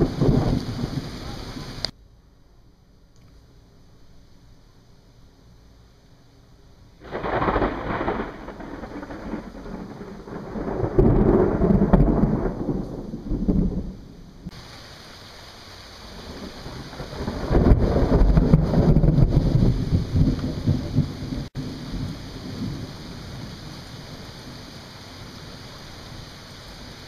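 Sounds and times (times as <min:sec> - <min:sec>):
thunder rumbling: 0:00.0 - 0:01.9, 0:07.0 - 0:14.7, 0:16.0 - 0:27.0.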